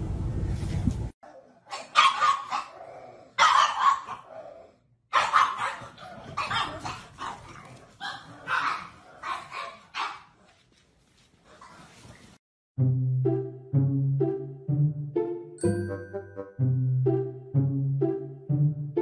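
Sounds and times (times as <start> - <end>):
dogs barking: 1.3 - 4.4, 5.1 - 10.4.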